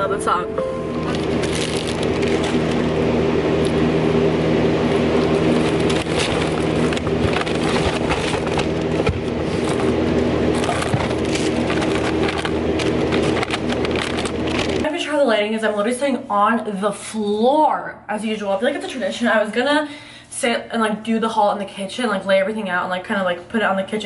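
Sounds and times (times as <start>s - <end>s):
low hum: 0.0s - 14.9s
plastic bags crackling: 0.9s - 3.0s, 5.2s - 14.9s.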